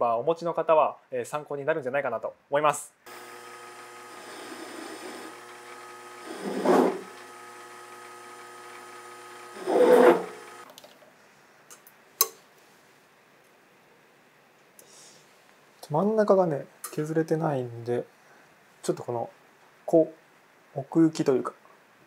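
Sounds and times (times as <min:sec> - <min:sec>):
drill cutting into steel: 0:03.1 - 0:10.7
lathe motor humming: 0:03.1 - 0:10.7.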